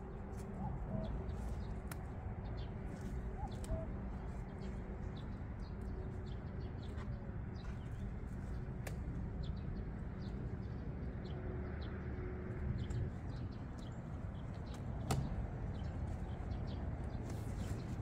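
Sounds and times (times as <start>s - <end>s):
low outdoor rumble: 0.0s - 18.0s
tent clicks and rustles: 12.9s - 18.0s.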